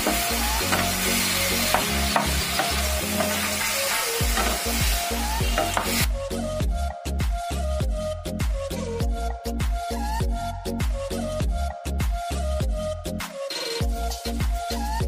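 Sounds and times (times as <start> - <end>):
mushrooms sizzling in oil: 0.0 - 6.1
background music with beat: 0.0 - 15.0.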